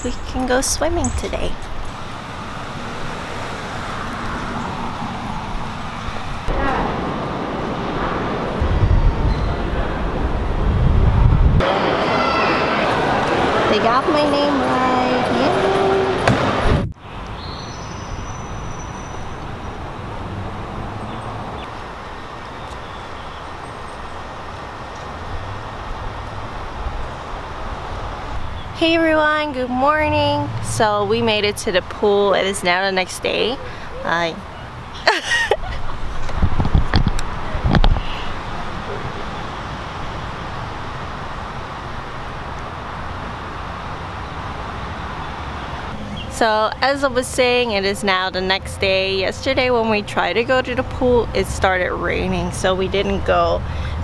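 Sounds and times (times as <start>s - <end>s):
outdoor background rumble: 14.4s - 54.0s.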